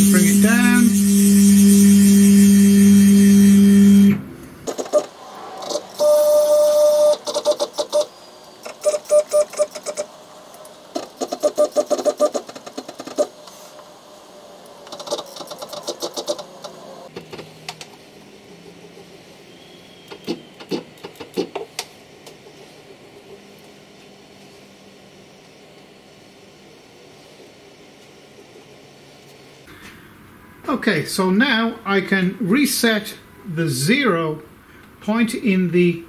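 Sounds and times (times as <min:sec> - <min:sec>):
milling machine motors whining: 0:00.0 - 0:12.2.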